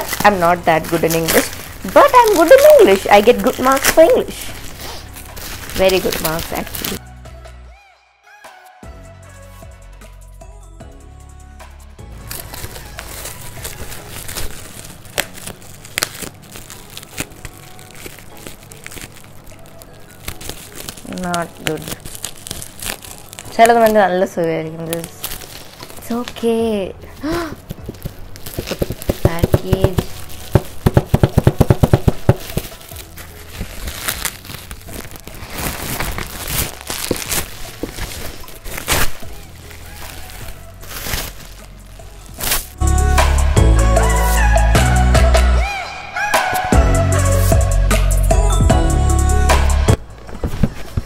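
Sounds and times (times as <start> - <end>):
plastic packaging crinkling: 0.0 - 7.0, 12.1 - 42.8, 49.9 - 51.0.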